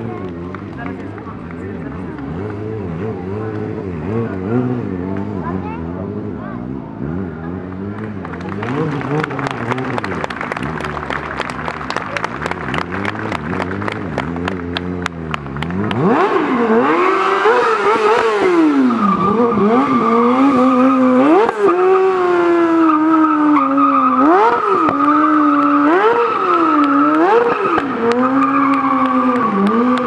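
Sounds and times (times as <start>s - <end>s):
motorcycle engine revving: 0.0s - 30.0s
tyre squeal: 17.4s - 30.0s.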